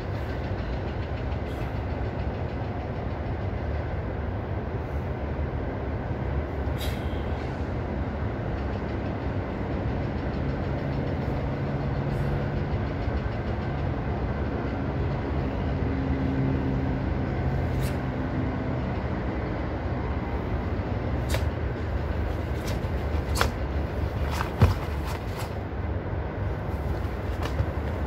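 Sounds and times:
low rumbling background noise: 0.0 - 28.0
sharp snap: 21.2 - 21.6.

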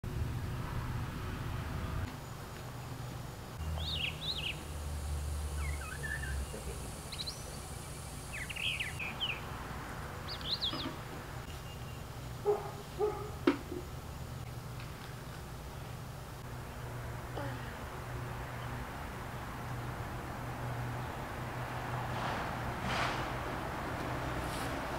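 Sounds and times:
steady low hum: 0.0 - 10.4
songbirds chirping: 2.0 - 21.9.

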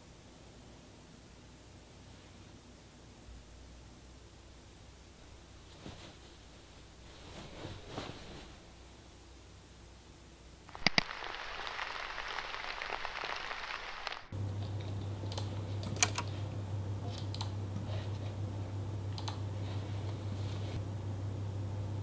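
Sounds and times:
low hum: 0.0 - 22.0
rain hiss: 10.7 - 14.3
keyboard typing: 15.3 - 16.3
computer mouse clicks: 17.1 - 17.6, 19.1 - 19.4.

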